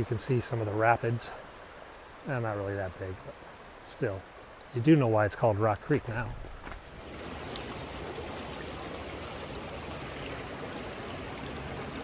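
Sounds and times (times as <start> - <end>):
water rushing over rocks: 5.1 - 12.0.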